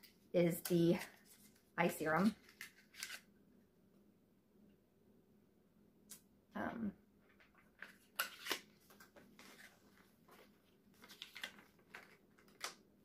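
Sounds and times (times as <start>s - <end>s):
paper and packaging rustling: 0.0s - 3.3s, 7.3s - 12.8s.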